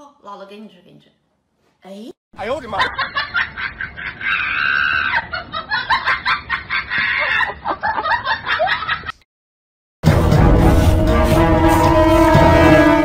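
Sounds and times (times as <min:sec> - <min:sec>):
woman laughing in shrieks: 0:04.0 - 0:05.5.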